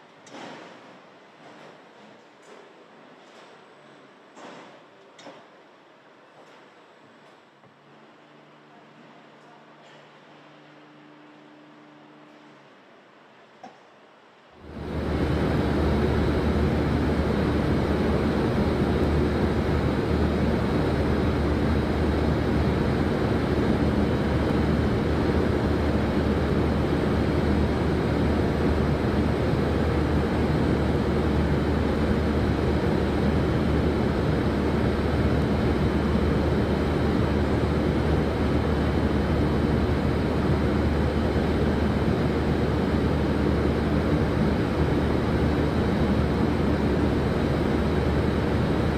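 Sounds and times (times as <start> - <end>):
factory machinery drone: 14.6 - 48.9.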